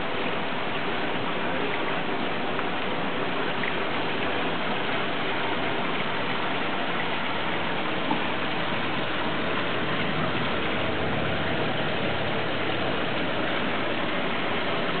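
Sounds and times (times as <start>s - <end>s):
aquarium filter water rushing: 0.0s - 15.0s
air bubbles streaming: 3.4s - 15.0s.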